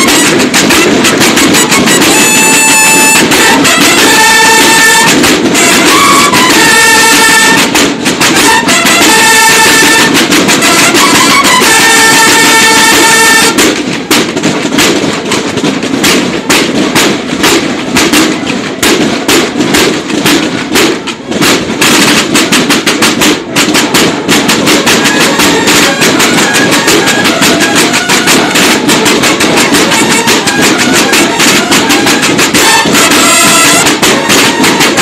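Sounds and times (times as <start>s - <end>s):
bugle note: 0.0s - 13.6s, 24.8s - 29.0s, 29.6s - 35.0s
marching snare drums: 0.0s - 35.0s.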